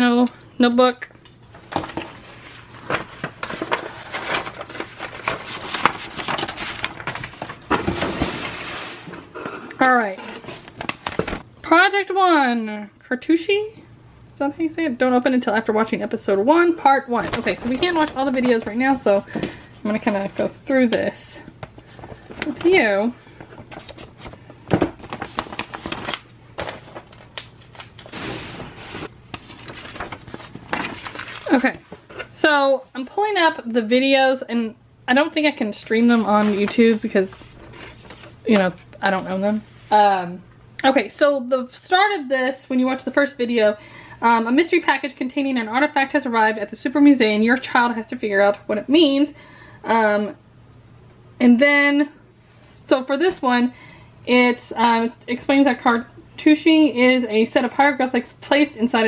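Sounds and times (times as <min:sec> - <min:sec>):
paper rustling and crinkling: 0:01.6 - 0:11.4, 0:17.2 - 0:20.5, 0:21.4 - 0:32.4, 0:35.9 - 0:38.8.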